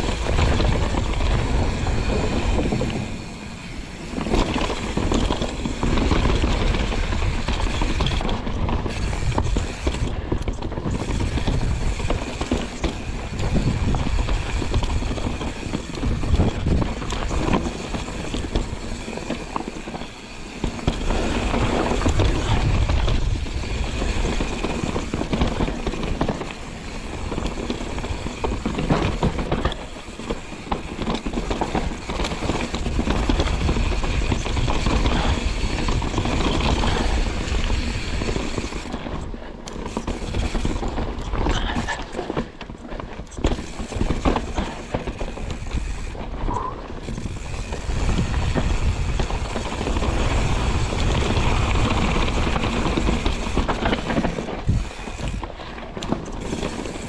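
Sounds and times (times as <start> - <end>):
bike rattling over bumps: 0.0 - 57.0
bike tyres rolling over dirt: 0.0 - 57.0.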